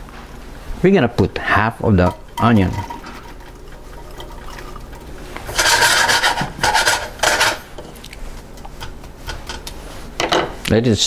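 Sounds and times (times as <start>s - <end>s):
wooden spatula scraping a pan: 1.9s - 10.2s.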